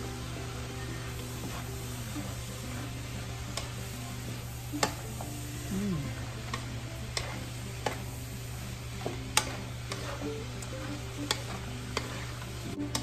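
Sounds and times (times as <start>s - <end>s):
food sizzling in a wok: 0.0s - 13.0s
wooden spatula scraping pan: 1.0s - 3.0s, 7.1s - 8.0s, 9.0s - 13.0s.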